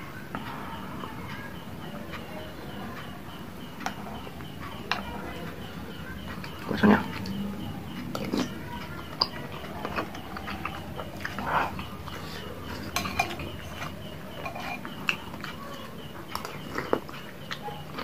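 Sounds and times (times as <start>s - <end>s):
close-up chewing: 0.2s - 18.0s
spoon clinking on ceramic bowl: 12.9s - 15.2s.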